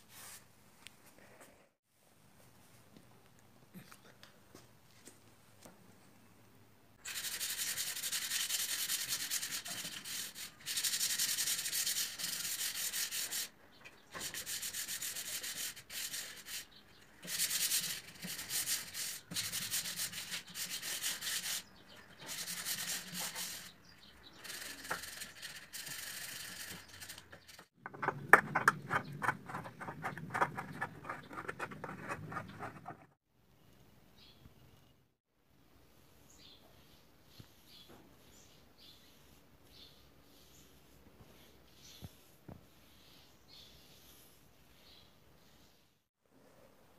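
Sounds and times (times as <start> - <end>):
rapid low scraping: 27.8 - 33.2.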